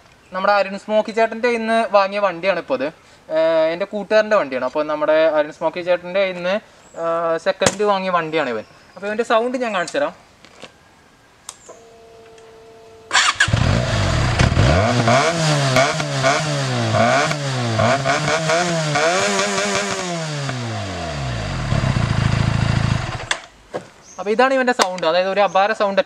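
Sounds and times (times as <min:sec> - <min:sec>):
faint steady hum: 0:10.2 - 0:13.2
motorcycle engine revving: 0:13.1 - 0:23.4.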